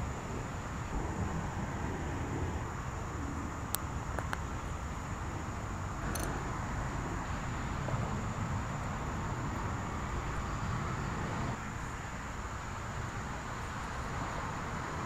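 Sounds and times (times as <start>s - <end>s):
outdoor rumble and hiss: 0.0s - 15.0s.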